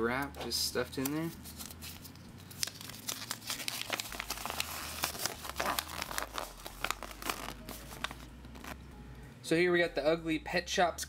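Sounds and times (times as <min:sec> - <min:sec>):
paper leaflet crinkling: 0:00.8 - 0:08.8.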